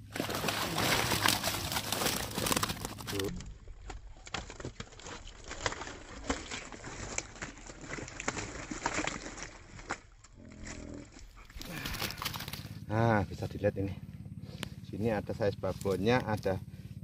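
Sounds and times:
water splashing and pouring: 0.0 - 3.4, 4.3 - 10.1
fish flapping against a net: 0.0 - 10.7, 11.4 - 12.8.

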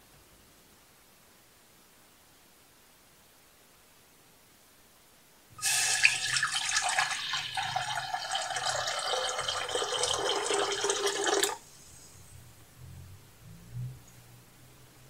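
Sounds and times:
water pouring into metal saucepan: 5.6 - 11.6.

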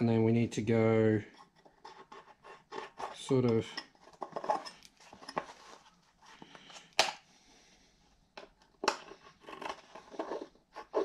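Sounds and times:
metal and plastic handling: 1.4 - 7.2.

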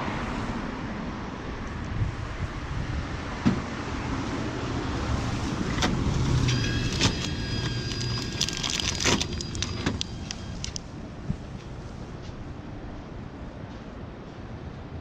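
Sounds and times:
street traffic hum: 0.0 - 15.0
plastic bag crinkling: 6.6 - 10.8.

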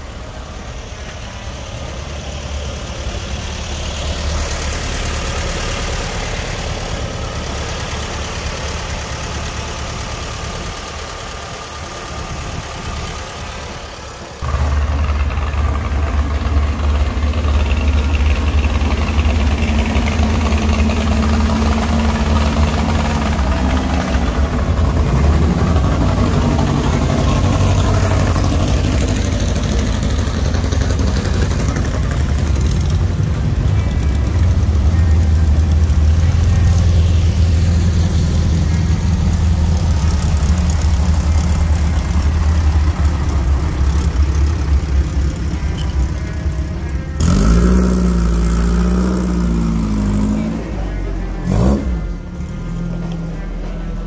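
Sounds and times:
car engines driving past: 0.0 - 54.0.

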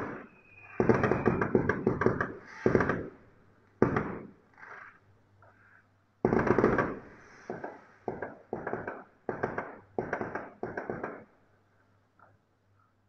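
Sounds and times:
fireworks bursting and crackling: 0.0 - 3.2, 6.2 - 11.3.

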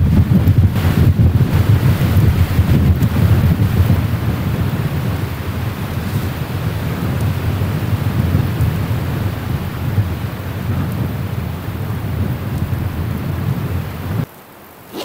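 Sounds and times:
wind buffeting microphone: 0.0 - 14.3.

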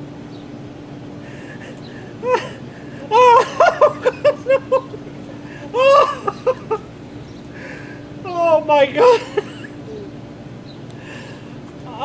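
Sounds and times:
man crying out: 1.3 - 6.9, 7.6 - 10.1
man laughing: 1.3 - 7.0, 7.6 - 10.2.

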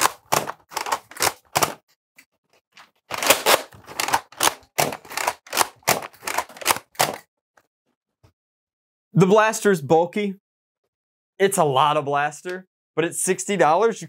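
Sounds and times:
toy blaster mechanism clacking: 3.1 - 7.2.

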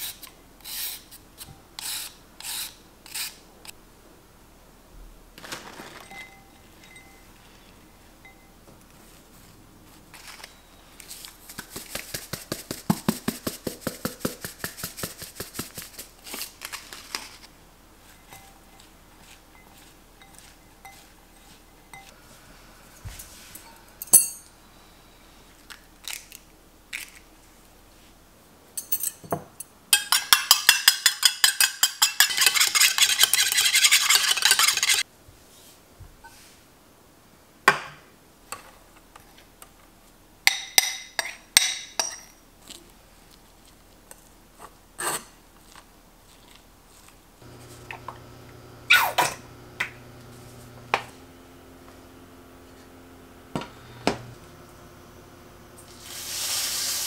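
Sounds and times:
spoon clinking on mesh strainer: 6.1 - 7.3, 18.2 - 18.9, 23.6 - 24.5, 28.8 - 33.2
metal utensils clinking: 23.6 - 24.5, 28.8 - 35.0
rhythmic scraping strokes: 32.3 - 35.0
induction hob humming: 47.4 - 57.0.

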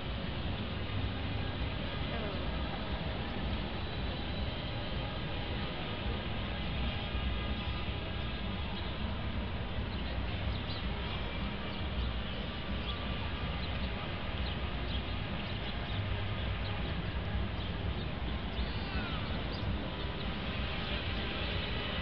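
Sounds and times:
low city rumble: 0.0 - 22.0
small birds chirping: 9.8 - 20.4.

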